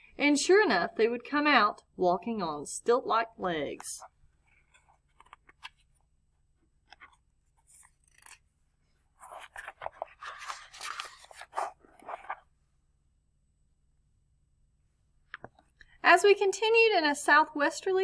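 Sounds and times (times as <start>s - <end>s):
paper pages rustling: 6.8s - 12.6s.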